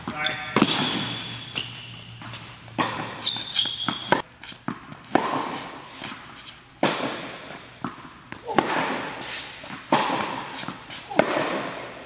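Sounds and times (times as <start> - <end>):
shoe squeak on court: 0.1 - 4.6.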